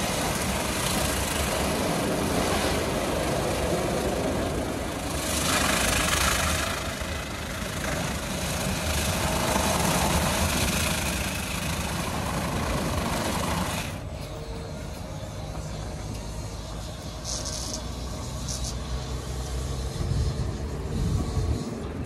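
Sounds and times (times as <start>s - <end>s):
car wash brushes spinning: 0.0s - 14.9s.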